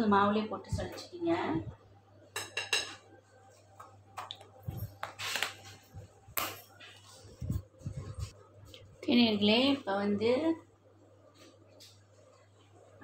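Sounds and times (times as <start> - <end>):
kitchenware clicks and taps: 2.4 - 3.0.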